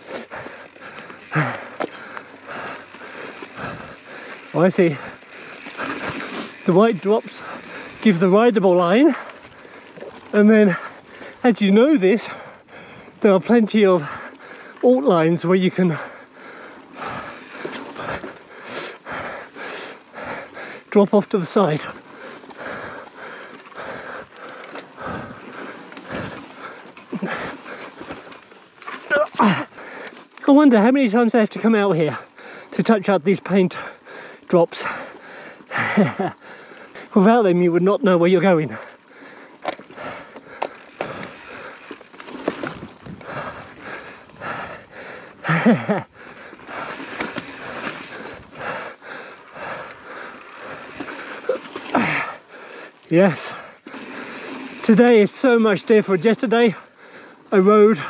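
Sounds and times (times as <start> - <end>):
person breathing heavily: 0.0 - 8.2, 9.0 - 11.5, 12.2 - 13.3, 14.0 - 14.8, 15.7 - 21.0, 21.8 - 28.4, 29.3 - 30.3, 32.1 - 32.7, 33.8 - 37.2, 38.7 - 42.0, 42.6 - 54.8, 56.8 - 58.0
bike tyre and drivetrain noise: 0.0 - 58.0
sharp bike clicks: 0.1 - 8.3, 46.5 - 48.4.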